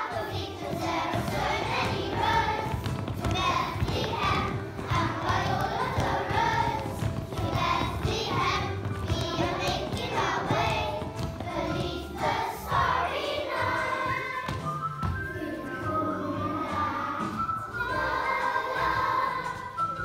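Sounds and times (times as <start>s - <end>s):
children singing together: 0.0s - 14.6s, 15.3s - 19.8s
instrumental music: 0.0s - 20.0s.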